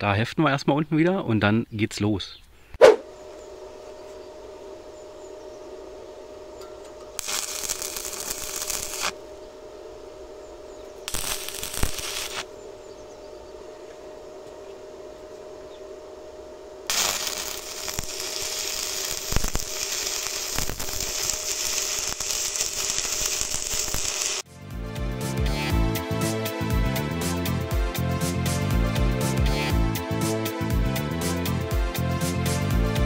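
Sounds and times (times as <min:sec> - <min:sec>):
welding arc crackling and hissing: 0:06.9 - 0:09.2, 0:11.0 - 0:12.5, 0:16.8 - 0:24.5.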